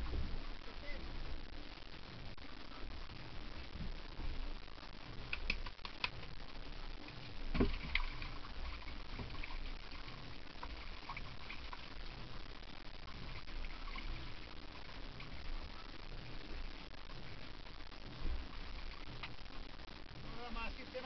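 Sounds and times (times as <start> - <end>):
wind noise: 0.0 - 6.3
water lapping: 7.0 - 16.3.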